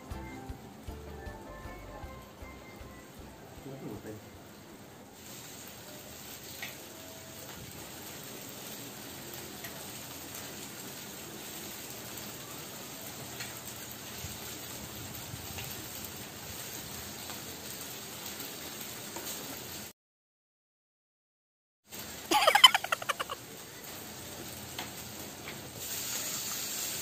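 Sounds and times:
meat sizzling on a grill: 3.6 - 19.9, 21.9 - 27.0.

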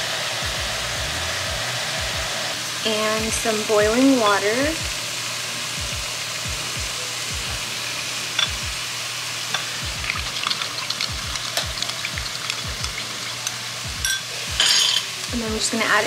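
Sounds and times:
water pouring into a bowl: 9.8 - 14.0
spoon clinking against a bowl: 10.4 - 15.1.

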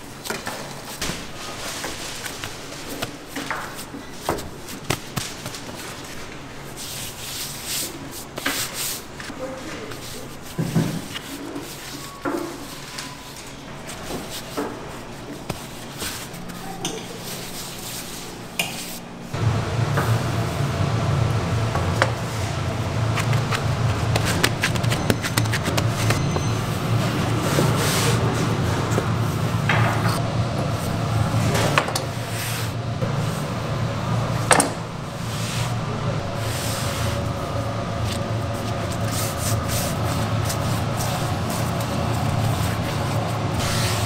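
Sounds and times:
low machine hum: 9.0 - 44.0.

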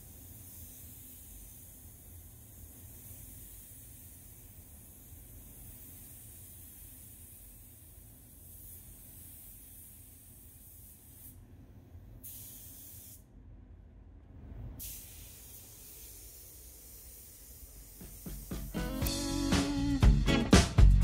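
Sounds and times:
spray gun hissing: 0.0 - 11.4, 12.2 - 13.2, 14.8 - 19.8
steady low rumble: 13.5 - 14.8.

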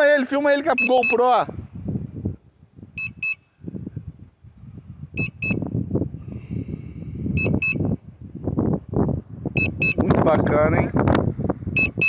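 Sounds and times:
high double beep: 0.8 - 1.2, 3.0 - 3.4, 5.2 - 5.6, 7.4 - 7.8, 9.6 - 10.0, 11.8 - 12.0.

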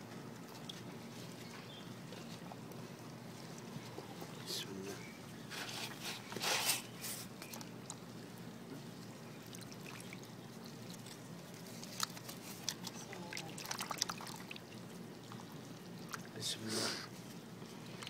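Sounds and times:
water dripping: 9.0 - 11.3, 11.9 - 16.4
water splashing in a plastic basin: 9.3 - 16.4.

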